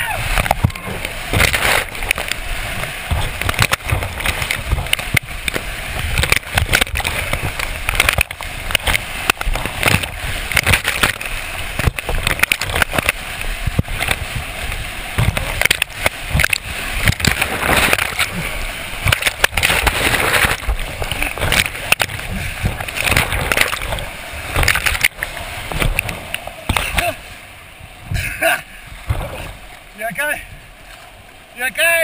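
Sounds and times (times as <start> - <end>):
rapids rushing water: 0.0 - 32.0
water splashing on camera: 0.0 - 32.0.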